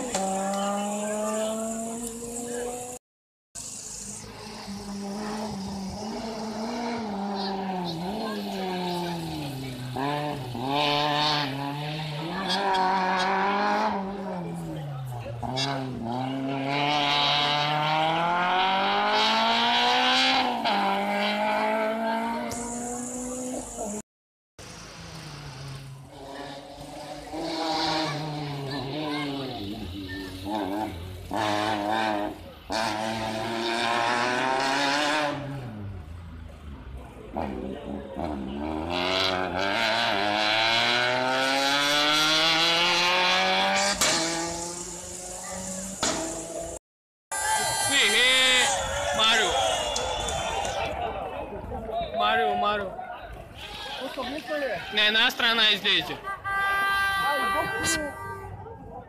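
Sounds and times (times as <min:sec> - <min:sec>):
car engine accelerating hard: 0:00.0 - 0:03.0, 0:03.6 - 0:24.0, 0:24.6 - 0:46.8.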